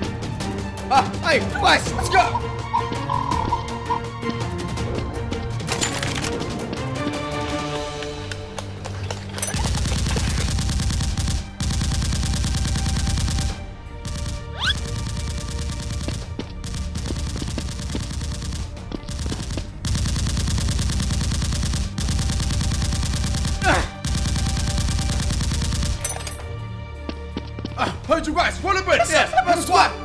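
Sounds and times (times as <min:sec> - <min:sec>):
automatic gunfire: 0:09.5 - 0:26.2.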